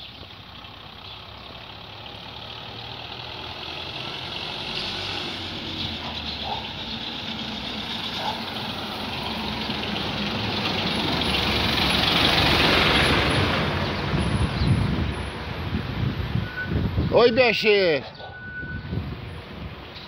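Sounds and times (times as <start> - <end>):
truck engine passing: 0.0 - 19.9.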